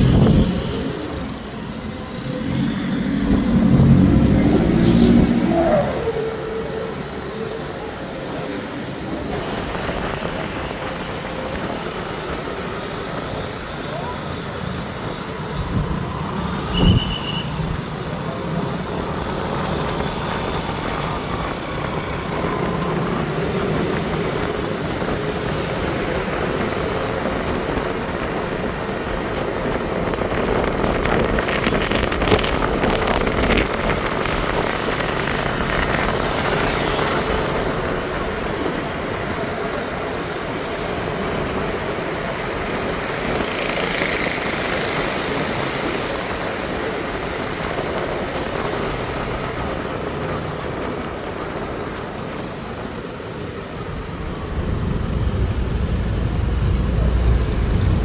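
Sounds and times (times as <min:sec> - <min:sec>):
city traffic noise: 0:00.0 - 0:58.0
tyre and road noise: 0:00.0 - 0:58.0.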